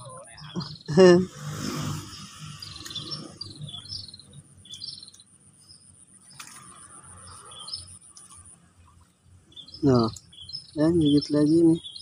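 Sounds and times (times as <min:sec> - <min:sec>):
birds chirping: 0:00.0 - 0:12.0
high-pitched insect buzz: 0:01.2 - 0:03.6.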